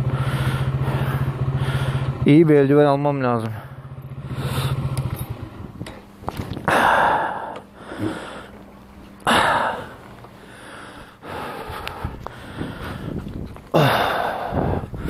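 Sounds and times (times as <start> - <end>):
hard out-breaths: 0.0 - 2.2, 3.4 - 5.1, 6.3 - 15.0
quiet breathing: 6.7 - 15.0.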